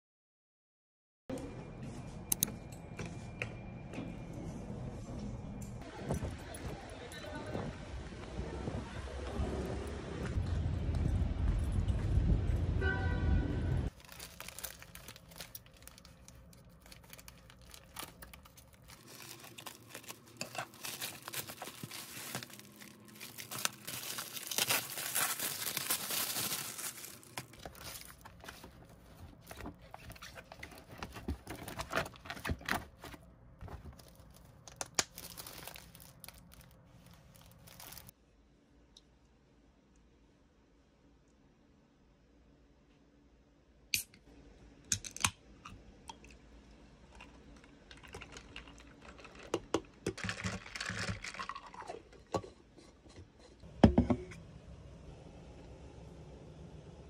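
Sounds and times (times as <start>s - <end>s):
plastic wrapping crinkling: 13.9s - 38.1s, 47.8s - 52.0s.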